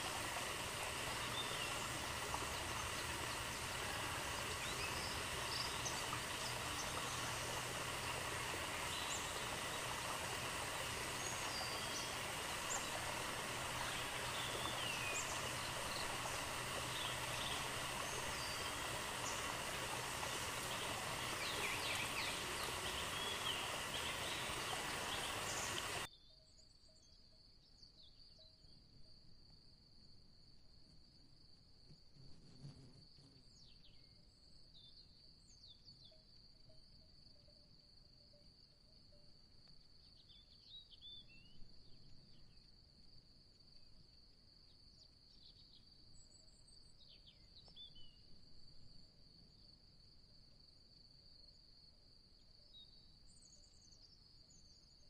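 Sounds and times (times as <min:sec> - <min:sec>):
forest hiss: 0:00.0 - 0:26.1
insect drone: 0:00.0 - 0:26.1.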